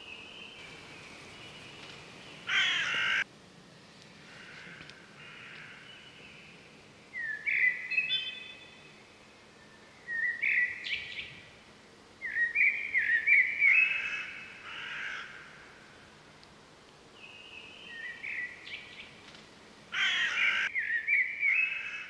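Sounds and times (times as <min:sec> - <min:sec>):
bird chirping: 0:00.0 - 0:03.2, 0:05.5 - 0:11.4, 0:17.2 - 0:19.2.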